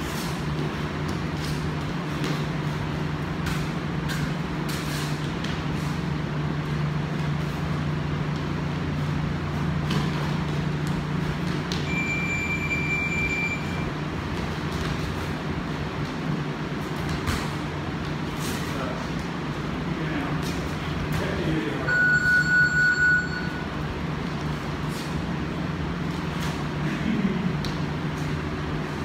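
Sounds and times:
feet on mat: 0:00.0 - 0:12.0, 0:13.6 - 0:21.5
high electronic beep: 0:11.9 - 0:13.9, 0:21.9 - 0:23.7.

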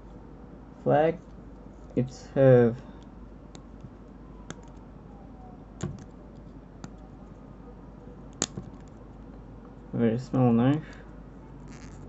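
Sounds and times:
multi-tool clicks and taps: 0:08.3 - 0:08.9.

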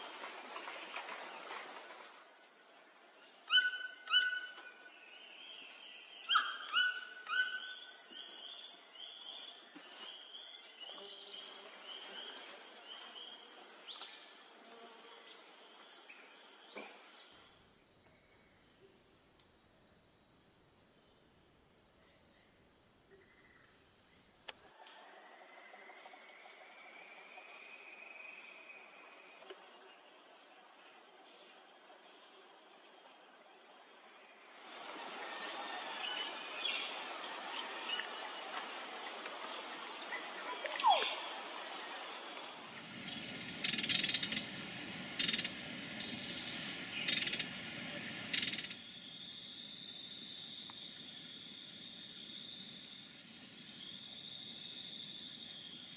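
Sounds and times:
forest insects droning: 0:00.0 - 0:55.9
bird calling loudly: 0:06.3 - 0:07.7.

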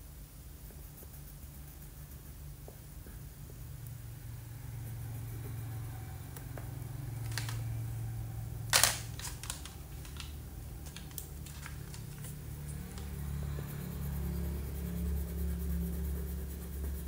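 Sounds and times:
low hum: 0:00.0 - 0:17.0
crayons clicking: 0:07.2 - 0:07.6, 0:08.7 - 0:13.7.

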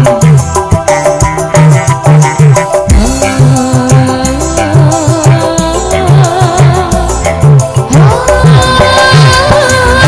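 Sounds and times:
heavy drum hit: 0:00.0 - 0:04.0
fast drum beat: 0:00.0 - 0:10.0
street band music: 0:00.0 - 0:10.0.

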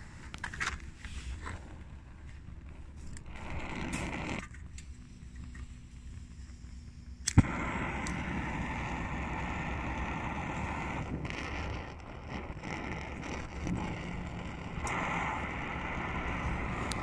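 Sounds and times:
stove burner hissing roar: 0:00.0 - 0:17.0
burner lighting pop: 0:03.0 - 0:05.7, 0:07.1 - 0:17.0.

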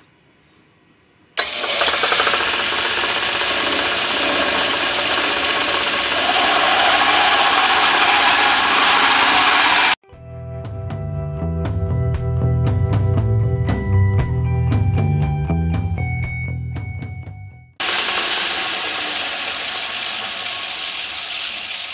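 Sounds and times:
lathe drilling into brass: 0:01.4 - 0:10.0, 0:17.8 - 0:21.9.

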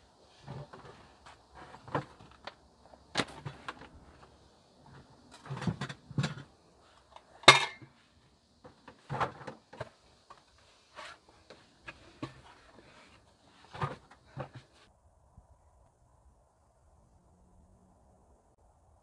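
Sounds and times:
items clattering in plastic barrel: 0:00.4 - 0:08.0, 0:08.6 - 0:14.8.

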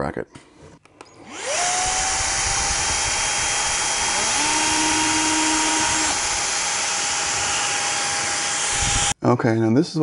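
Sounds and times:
stick vacuum whining: 0:01.1 - 0:09.2
cordless drill drilling: 0:01.2 - 0:09.2.

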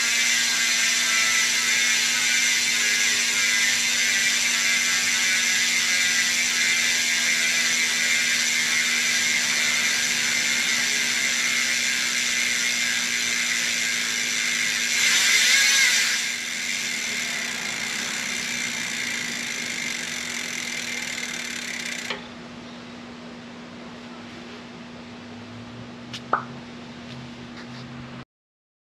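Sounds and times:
bicycle hub freewheel ratchet buzzing: 0:00.0 - 0:22.4.

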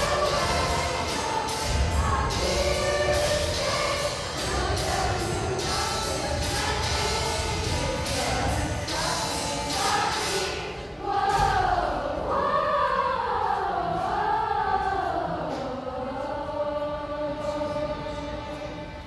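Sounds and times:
children's choir singing: 0:00.0 - 0:19.0.

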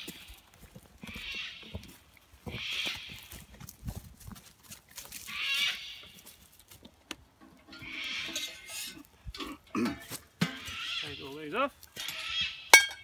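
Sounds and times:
harsh animal calls: 0:01.0 - 0:03.5, 0:05.2 - 0:06.2, 0:07.7 - 0:09.9, 0:10.5 - 0:12.8.

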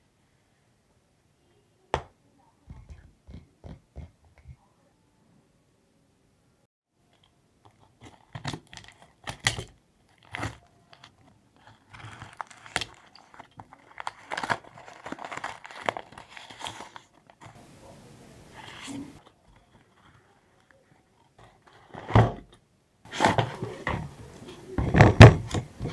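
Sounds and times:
packing tape crinkling: 0:07.8 - 0:17.6
paper tearing: 0:10.1 - 0:17.6.

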